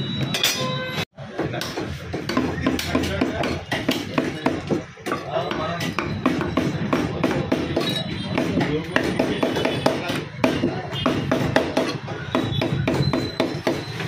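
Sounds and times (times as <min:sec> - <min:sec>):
cleaver chopping on wooden block: 0:05.8 - 0:13.9.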